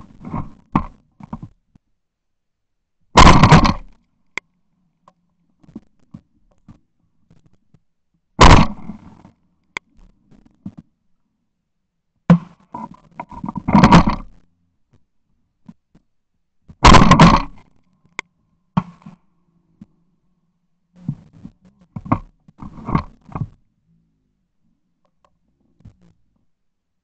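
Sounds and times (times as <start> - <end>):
shotgun shots: 3.2 - 3.8, 8.4 - 9.0, 16.8 - 17.5.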